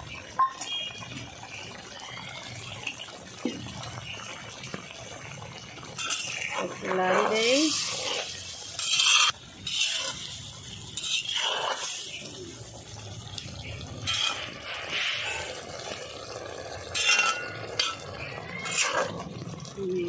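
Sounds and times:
gravy sloshing: 1.5 - 20.0
spatula scraping pan: 6.0 - 12.3, 14.0 - 15.9, 16.9 - 19.2.

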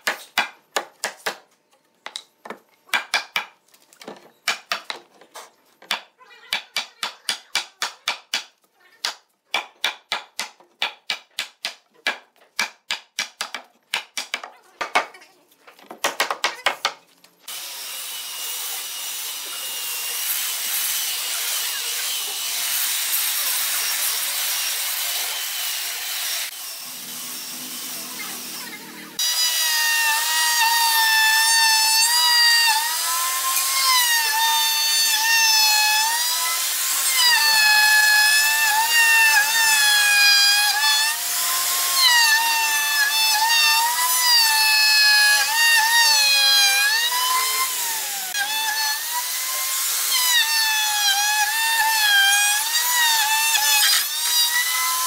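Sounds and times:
electric sander on wood: 17.5 - 55.0.

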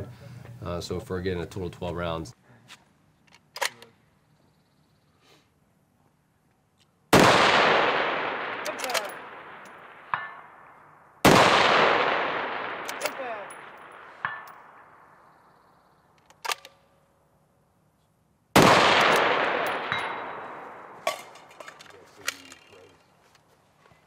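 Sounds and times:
rifle shots echoing: 7.1 - 15.3, 18.6 - 21.8
bullets ringing on steel targets: 10.1 - 10.5, 13.0 - 14.8, 19.0 - 21.3.

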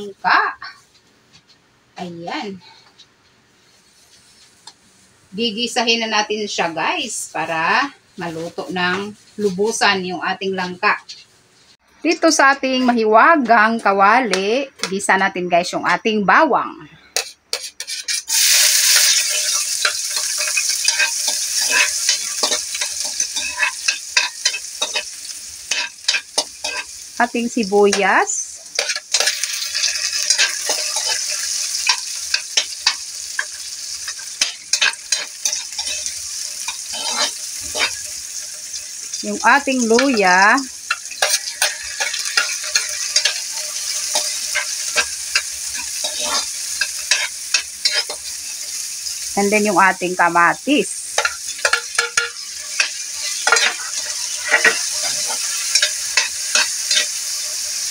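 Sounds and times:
spatula scraping a wok: 3.6 - 5.1, 17.1 - 27.2, 27.8 - 49.3, 51.0 - 57.9
garlic sizzling in hot oil: 3.6 - 13.1, 17.2 - 57.9.

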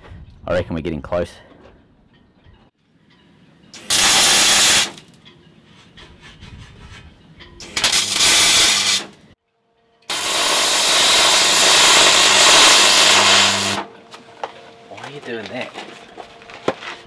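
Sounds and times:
welding arc hiss: 3.8 - 5.2, 7.6 - 9.2, 10.1 - 13.9.

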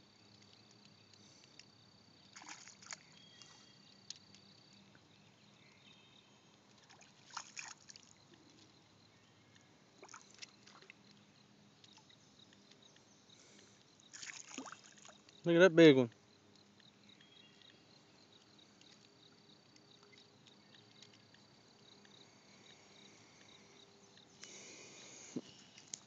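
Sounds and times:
faint outdoor background: 0.0 - 26.0
fish splashing at water surface: 2.3 - 3.5, 6.8 - 8.1, 14.1 - 15.2.

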